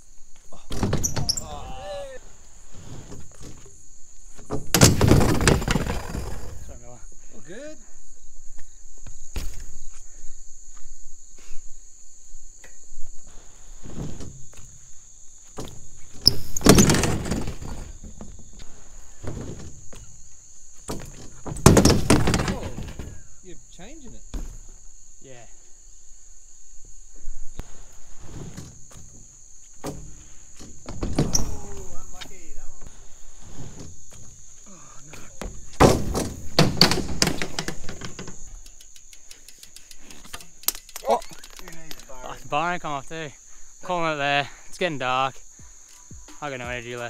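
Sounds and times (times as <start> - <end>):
high insect buzz: 0.0 - 47.0
bike clattering and scraping on ramp: 0.6 - 1.7, 2.6 - 6.6, 13.4 - 23.3, 24.2 - 24.9, 28.0 - 32.4, 35.4 - 41.8
bike knocking on coping: 35.4 - 41.9.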